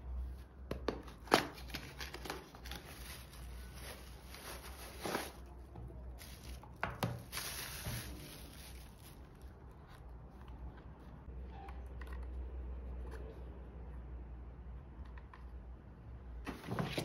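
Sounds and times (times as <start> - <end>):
cardboard and plastic handling: 0.7 - 10.6
rustling: 1.7 - 10.4.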